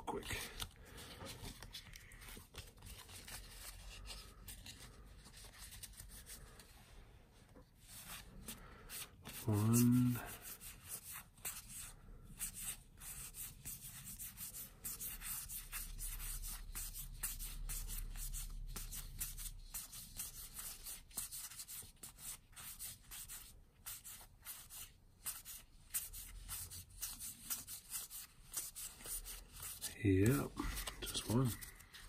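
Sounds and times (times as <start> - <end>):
cards being flipped through: 0.2 - 6.4, 27.0 - 32.0.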